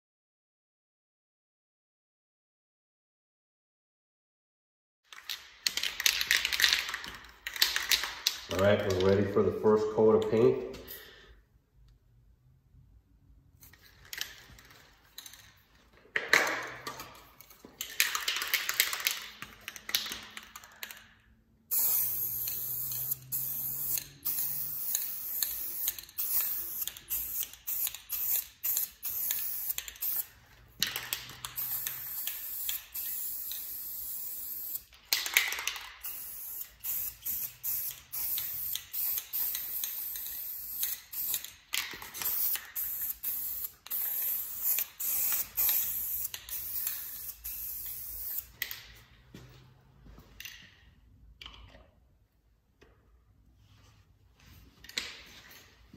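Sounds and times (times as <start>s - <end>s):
spray paint can hissing: 21.7s - 48.5s.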